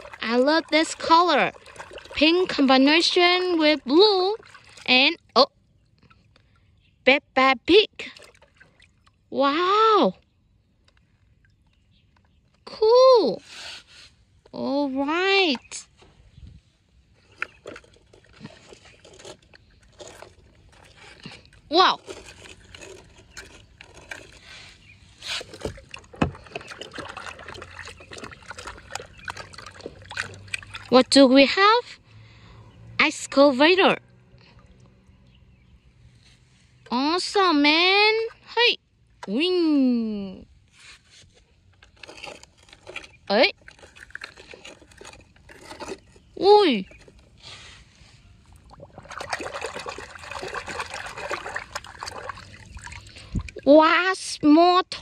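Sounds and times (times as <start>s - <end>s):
water sloshing and splashing: 0.0s - 39.5s, 40.4s - 55.0s.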